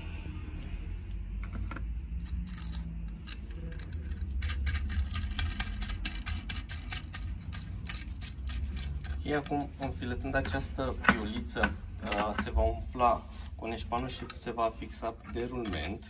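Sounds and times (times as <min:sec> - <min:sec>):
metallic clicking and rattling: 0:02.2 - 0:09.6, 0:14.1 - 0:16.0.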